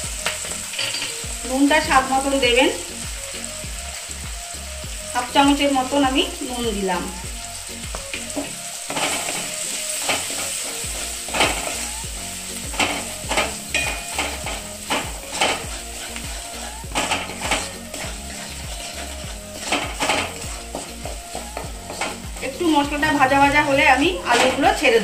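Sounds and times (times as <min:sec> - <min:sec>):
vegetables sizzling in oil: 0:00.0 - 0:25.0
spatula scraping metal pan: 0:08.3 - 0:12.0, 0:12.6 - 0:22.7.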